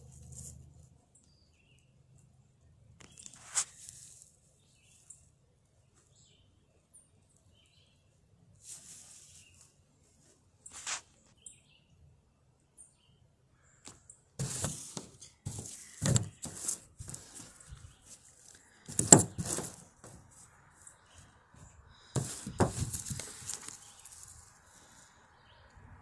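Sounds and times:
plush toys rustling and bumping: 0:14.4 - 0:20.4, 0:21.6 - 0:24.4.

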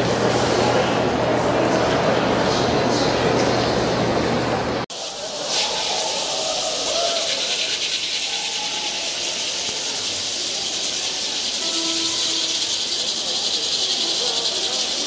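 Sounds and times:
faint crowd voices: 0:00.0 - 0:15.0
tin rattles shaking: 0:06.0 - 0:15.0.

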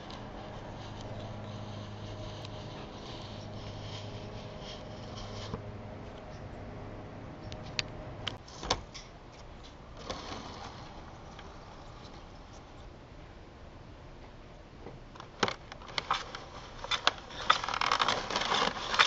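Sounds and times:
model train motor humming: 0:00.0 - 0:05.6, 0:10.0 - 0:12.8.

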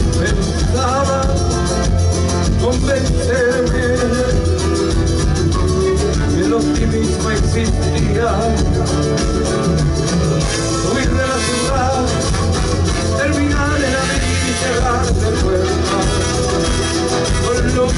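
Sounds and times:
drum kit: 0:00.0 - 0:17.9
strummed guitars: 0:00.0 - 0:17.9
trombone and trumpet: 0:10.3 - 0:17.9.

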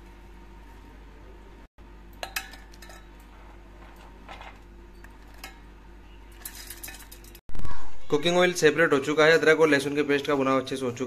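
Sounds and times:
steady low hum: 0:00.0 - 0:10.9
clinks against steel jar: 0:02.2 - 0:03.1, 0:06.3 - 0:07.4.

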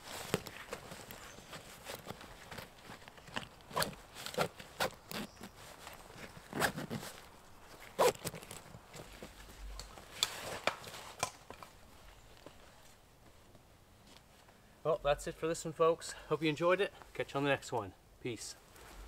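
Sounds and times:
nylon straps rustling: 0:00.0 - 0:14.4.

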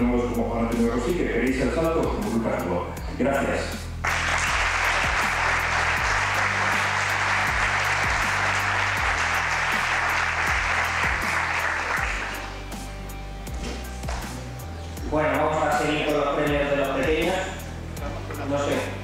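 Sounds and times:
background music with steady beat: 0:00.0 - 0:19.0
audience applauding: 0:04.0 - 0:12.6.

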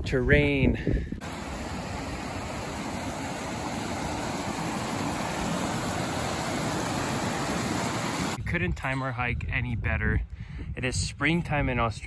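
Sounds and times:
stream rushing over boulders: 0:01.2 - 0:08.4.

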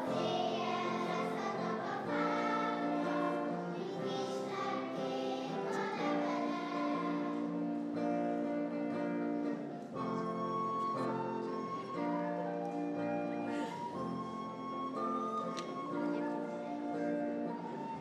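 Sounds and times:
children's choir singing: 0:00.0 - 0:08.1.

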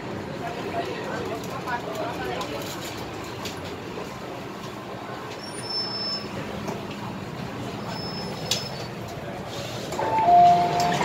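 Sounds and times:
train rumbling: 0:00.0 - 0:11.0
faint high squeals: 0:05.4 - 0:06.4, 0:07.8 - 0:08.9
two-tone door chime: 0:10.0 - 0:11.0.

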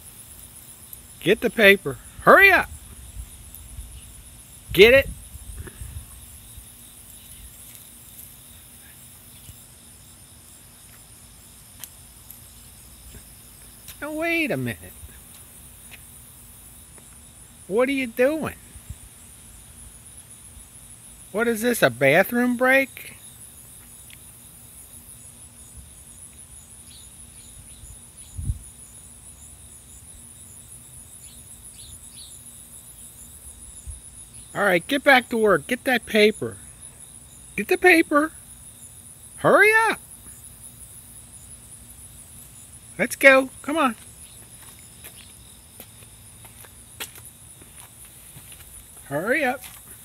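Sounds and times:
insect chirring: 0:00.0 - 0:50.0
faint ticks: 0:03.5 - 0:03.7.

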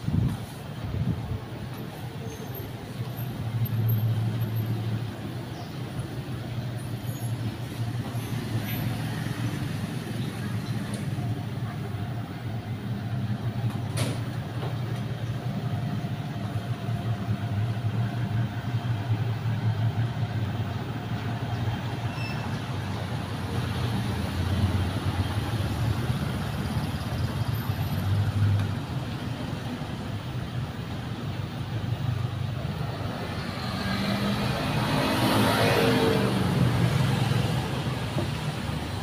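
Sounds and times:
traffic engine rumble: 0:00.0 - 0:39.0.

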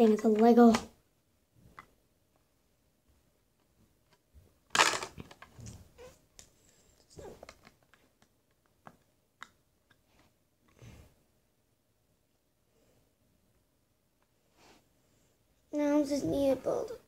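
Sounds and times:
plastic bricks clicking together: 0:04.7 - 0:05.8.

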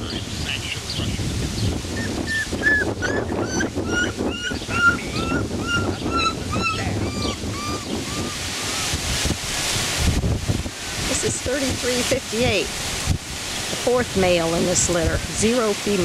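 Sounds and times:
wind noise on microphone: 0:00.0 - 0:16.0
puppy crying: 0:02.0 - 0:09.0.

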